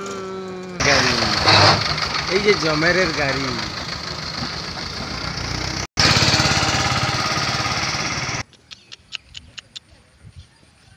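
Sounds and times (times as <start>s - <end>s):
tractor diesel engine running: 0.7s - 8.4s.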